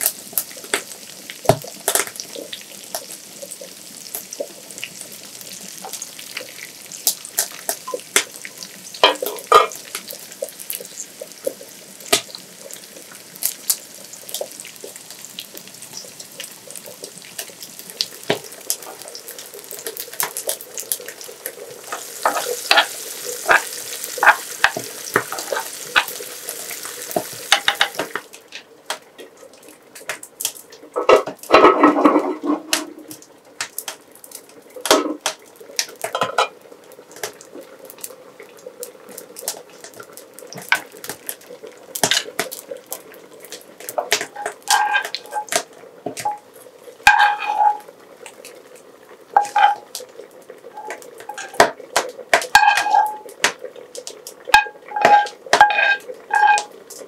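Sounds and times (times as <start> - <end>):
sizzling hiss: 0.0 - 57.0
spoons scraping metal pots: 21.8 - 28.1, 31.5 - 32.9, 44.1 - 45.6, 47.1 - 47.9, 49.4 - 49.9, 50.7 - 51.6, 52.4 - 53.3, 54.6 - 56.8.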